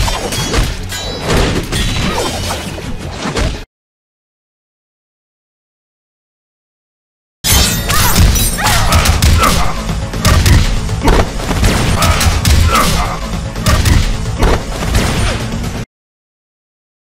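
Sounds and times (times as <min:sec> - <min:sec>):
punches thuds and crashes: 0:07.6 - 0:15.4
soundtrack music: 0:07.8 - 0:15.9.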